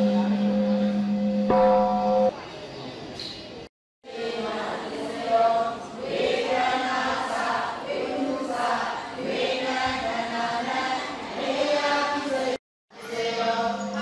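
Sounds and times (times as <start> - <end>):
group chanting prayers in unison: 4.0 - 14.0.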